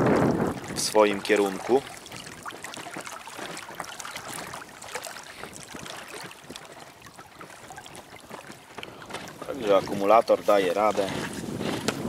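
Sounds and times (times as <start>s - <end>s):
water splashing against a dinghy hull: 0.0s - 12.0s
wind: 0.0s - 12.0s.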